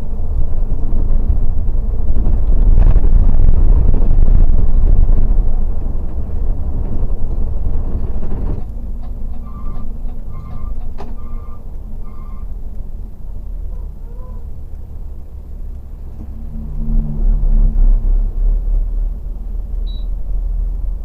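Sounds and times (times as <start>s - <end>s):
loud low drone: 0.0s - 10.4s, 11.3s - 21.0s
bus engine low rumble: 0.0s - 21.0s
short beeps: 19.8s - 20.2s.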